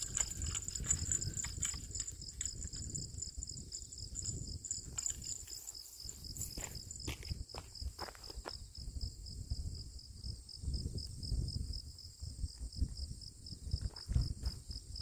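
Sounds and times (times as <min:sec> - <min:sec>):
insect chirping: 0:00.0 - 0:15.0.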